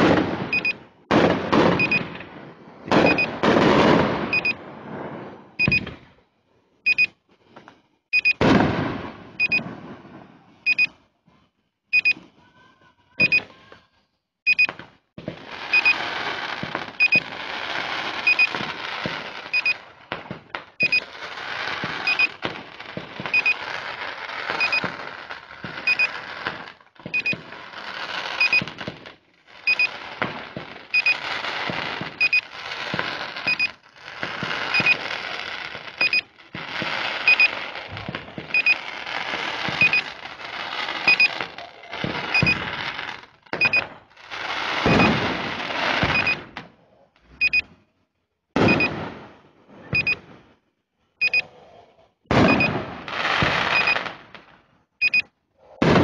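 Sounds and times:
electronic double beeps: 0.5s - 0.8s, 1.8s - 2.1s, 3.0s - 3.3s, 4.3s - 4.6s, 5.6s - 5.9s, 6.9s - 7.1s, 8.2s - 8.4s, 9.4s - 9.6s, 10.7s - 10.9s, 12.0s - 12.2s, 13.2s - 13.5s, 15.7s - 16.0s, 17.0s - 17.3s, 18.2s - 18.6s, 19.5s - 19.8s, 20.8s - 21.0s, 22.0s - 22.4s, 23.3s - 23.6s, 24.6s - 24.9s, 25.8s - 26.2s, 27.1s - 27.4s, 28.4s - 28.7s, 29.7s - 30.0s, 30.9s - 31.2s, 32.2s - 32.5s, 33.5s - 33.8s, 34.7s - 35.0s, 36.0s - 36.3s, 37.2s - 37.6s, 38.5s - 38.8s, 39.8s - 40.1s, 41.0s - 41.5s, 42.3s - 42.7s, 43.6s - 43.9s, 46.1s - 46.4s, 47.4s - 47.7s, 50.0s - 50.2s, 51.2s - 51.4s, 52.5s - 52.7s, 55.0s - 55.3s.

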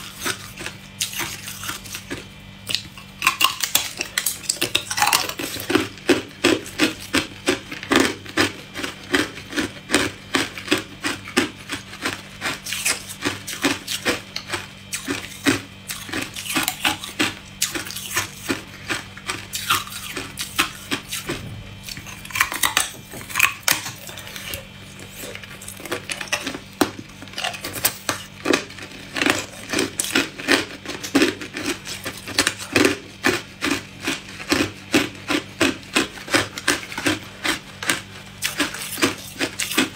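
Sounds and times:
ice being chewed: 0.0s - 39.9s.

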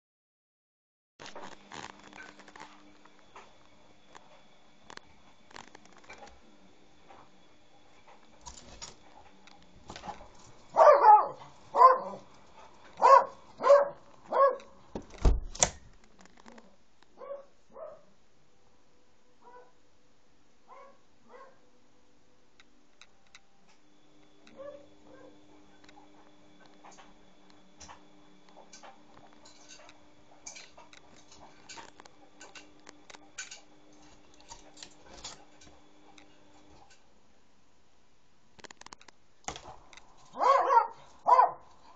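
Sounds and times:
faint steady hum: 1.2s - 41.9s
dog barking excitedly: 10.0s - 12.3s, 13.0s - 14.8s, 17.2s - 18.1s, 20.7s - 21.6s, 40.3s - 41.7s.

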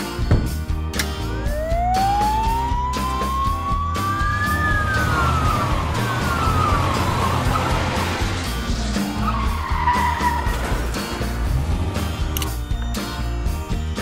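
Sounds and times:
background music with low beat: 0.0s - 14.0s
police siren wailing: 1.4s - 8.5s.

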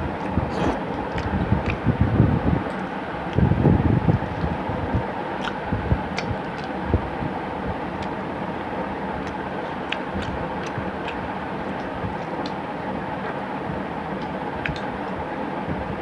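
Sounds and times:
steady background hum: 0.0s - 16.0s
person chewing and smacking: 0.1s - 2.0s, 5.3s - 6.8s, 7.9s - 8.2s, 9.1s - 13.4s, 14.1s - 15.2s
soft mouth clicks: 5.4s - 6.7s, 14.2s - 14.9s.

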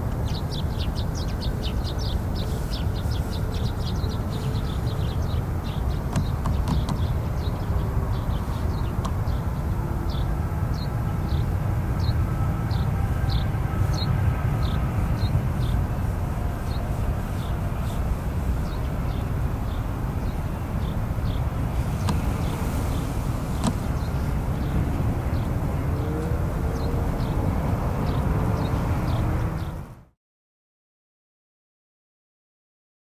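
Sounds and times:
jet engines rumbling: 0.1s - 30.0s.

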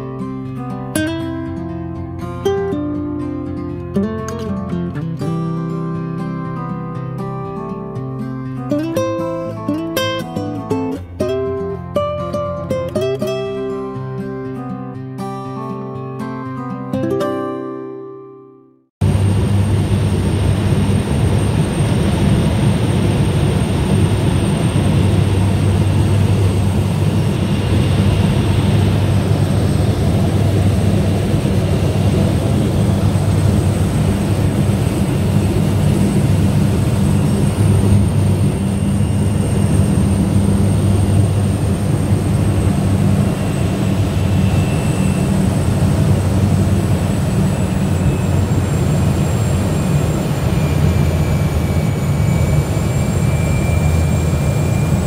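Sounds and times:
floatplane engine and propeller: 19.0s - 55.0s.

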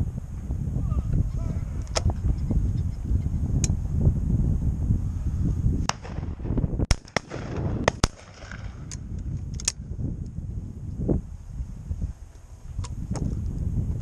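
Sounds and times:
wind buffeting the microphone: 0.0s - 14.0s
shotgun shots: 5.9s - 8.8s.

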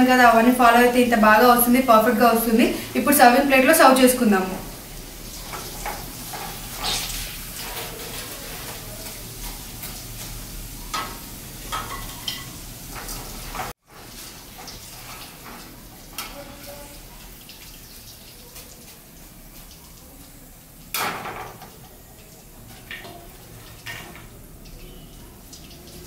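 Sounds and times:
faint oil sizzle: 0.0s - 26.0s.

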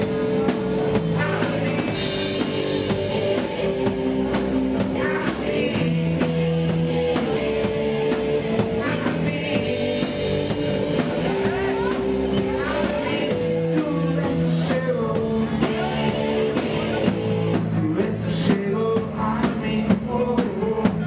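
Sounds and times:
electric guitar: 0.0s - 19.5s
drums playing: 0.0s - 21.0s
man singing into microphone: 8.7s - 10.2s, 12.4s - 21.0s.

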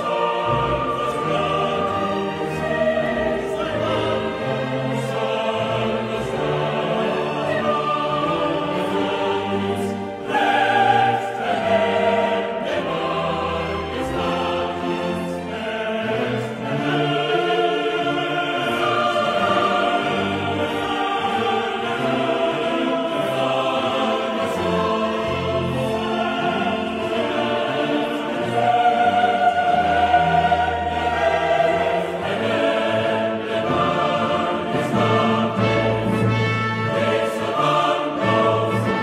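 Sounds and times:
choir singing held chords: 0.0s - 39.0s.

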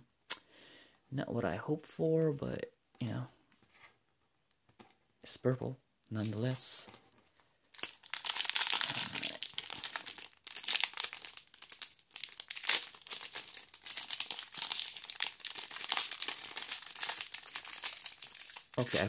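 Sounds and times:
foil wrapper crinkling and tearing: 7.7s - 19.0s.

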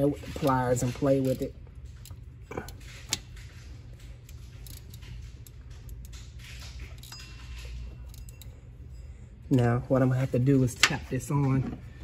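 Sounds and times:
ratchet clicking: 0.0s - 9.0s
steady low hum: 0.0s - 12.0s.

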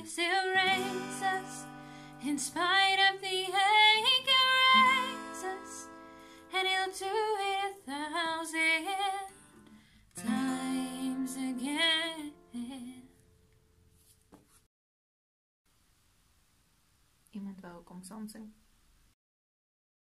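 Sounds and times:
woman singing: 0.0s - 9.4s, 10.2s - 13.1s
acoustic guitar: 0.0s - 14.3s.

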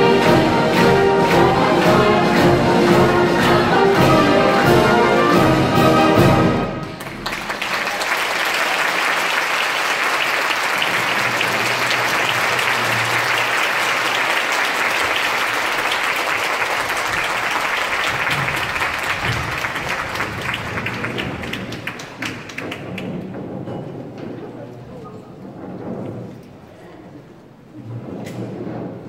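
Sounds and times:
audience clapping: 0.0s - 5.3s, 6.8s - 23.5s.

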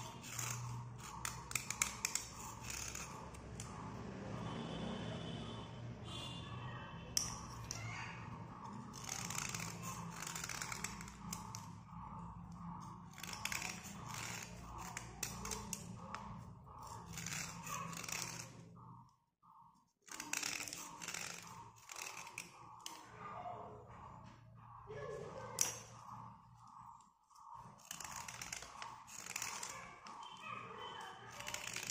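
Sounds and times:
fingernail scraping pencil: 0.0s - 3.9s, 8.5s - 18.7s, 20.1s - 23.0s, 25.6s - 31.9s.

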